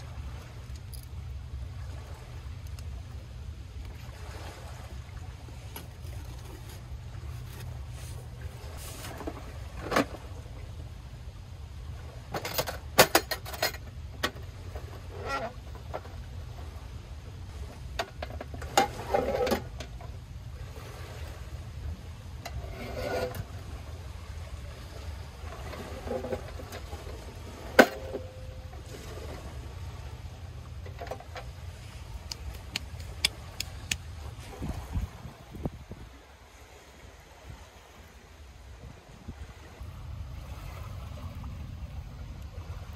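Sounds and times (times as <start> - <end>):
low steady rumble: 0.0 - 42.9
lid scraping open: 22.5 - 23.5.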